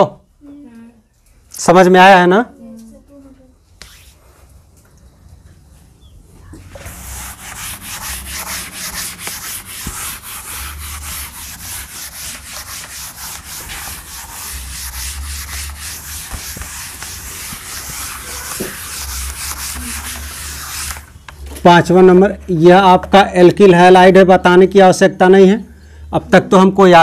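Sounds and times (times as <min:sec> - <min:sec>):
duster rubbing on chalkboard: 0:06.7 - 0:21.1.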